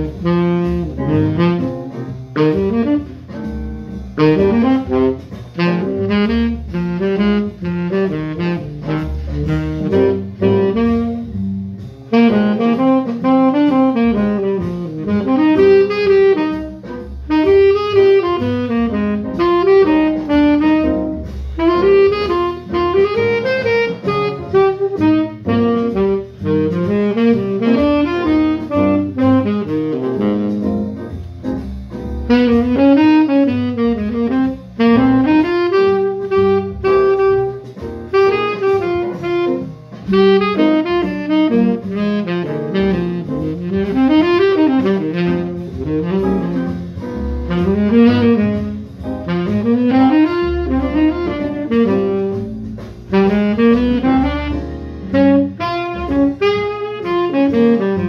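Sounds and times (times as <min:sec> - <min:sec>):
tenor saxophone jazz line: 0:00.0 - 0:58.0.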